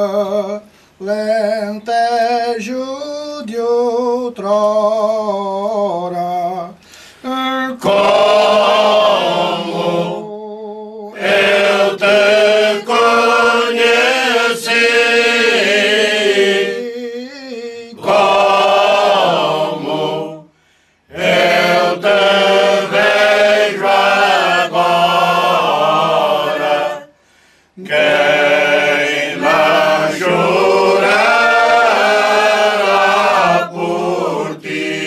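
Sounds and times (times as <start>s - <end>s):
choir singing a cappella: 7.2s - 27.2s, 27.8s - 35.0s.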